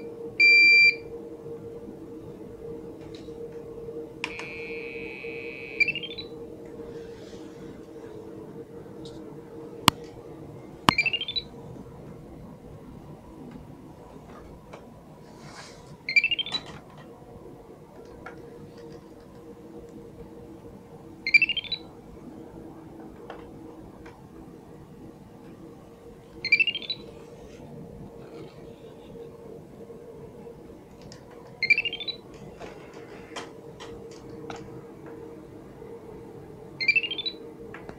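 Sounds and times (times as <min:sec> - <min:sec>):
buzzer rising scale of beeps: 0:00.4 - 0:01.0, 0:04.3 - 0:06.3
faint clicks: 0:30.9 - 0:31.6.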